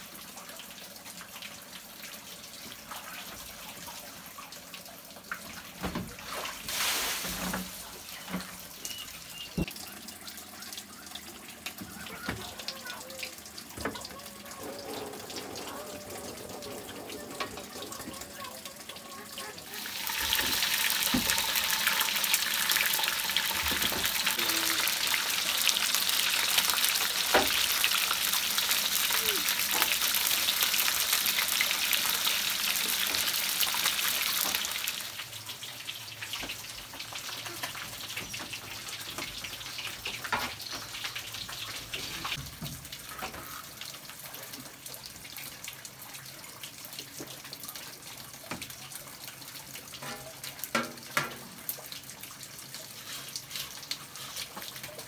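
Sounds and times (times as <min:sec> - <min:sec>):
fish sizzling in hot oil: 0:06.3 - 0:09.8, 0:19.6 - 0:44.3.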